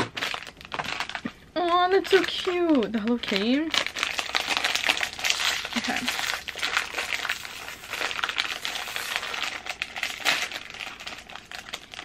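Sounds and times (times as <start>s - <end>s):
plastic snack wrapper crinkling: 0.0s - 12.0s.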